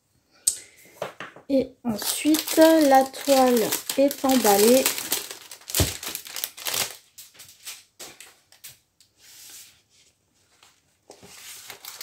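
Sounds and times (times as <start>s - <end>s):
plastic wrap crinkling: 1.9s - 8.8s, 11.1s - 12.0s.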